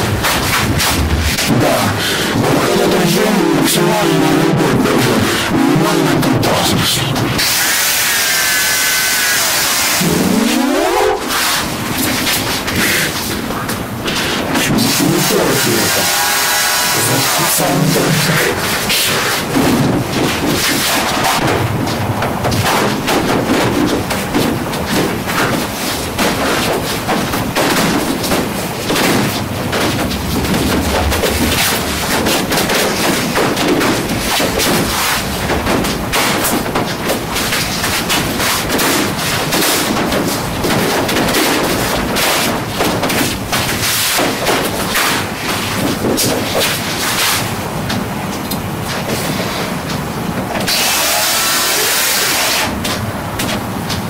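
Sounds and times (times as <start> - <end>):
bumping on microphone: 0.0 - 7.5.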